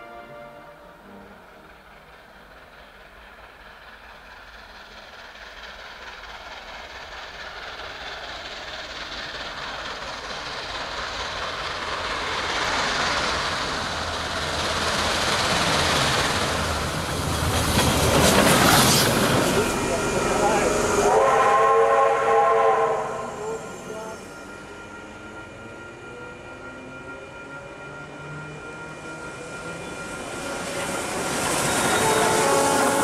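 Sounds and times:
steam locomotive approaching: 0.0s - 33.0s.

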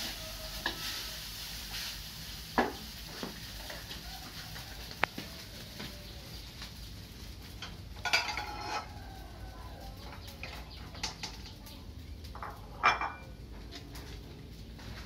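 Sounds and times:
ceramic plates clinking: 8.0s - 8.9s, 12.4s - 13.2s
plates ringing clatter: 8.0s - 8.9s, 12.4s - 13.2s.

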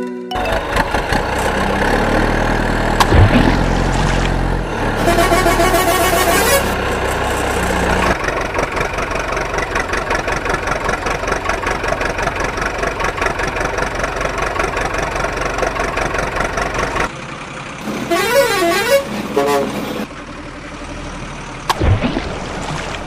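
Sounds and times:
truck engine idling with knock: 0.4s - 4.7s, 6.7s - 18.1s.

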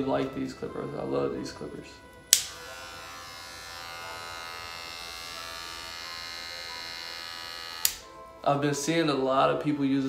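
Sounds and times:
hair clipper running: 2.1s - 8.1s
hair clipper switch click: 2.2s - 2.9s, 7.7s - 8.1s.

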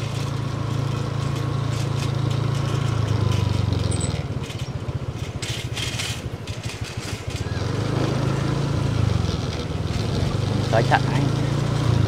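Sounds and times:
small motorbike engine: 0.0s - 12.0s.

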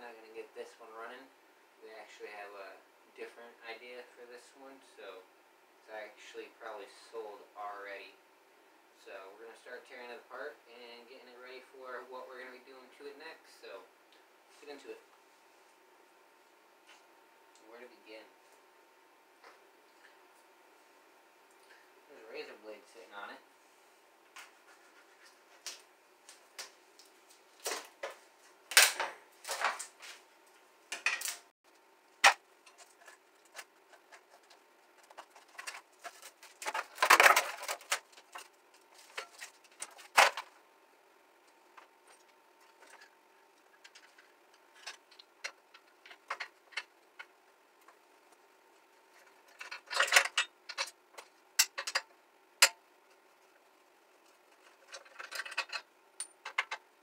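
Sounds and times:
metal parts and plastic panels rattling: 30.9s - 31.5s, 32.2s - 40.6s, 41.5s - 57.0s.

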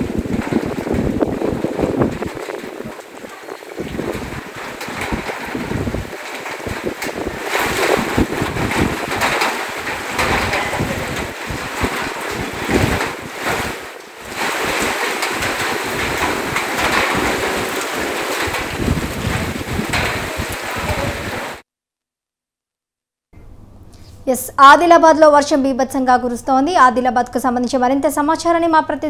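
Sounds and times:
floodwater flowing and splashing: 0.0s - 21.6s
wind buffeting microphone: 0.0s - 21.6s.

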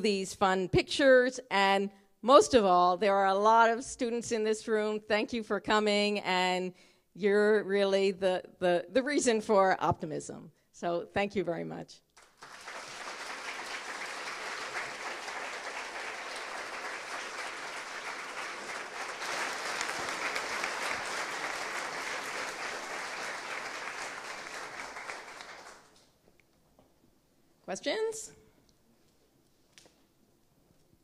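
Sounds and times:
audience applauding: 12.2s - 26.0s.

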